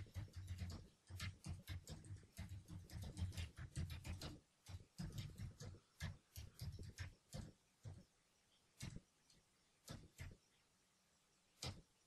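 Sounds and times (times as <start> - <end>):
typing on a keyboard: 0.0 - 8.0.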